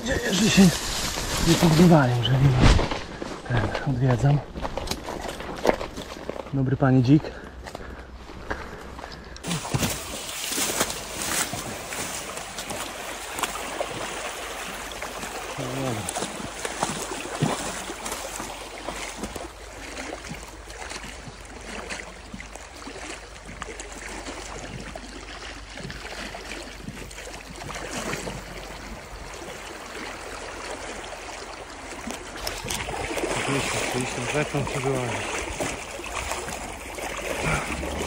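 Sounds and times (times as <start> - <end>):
running water: 0.0 - 38.0
footsteps rustling through undergrowth: 0.1 - 6.6, 7.5 - 14.0.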